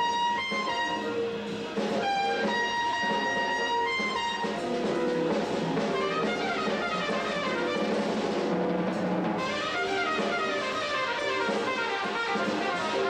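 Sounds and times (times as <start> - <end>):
band playing: 0.0 - 13.0
trumpet playing: 0.0 - 13.0.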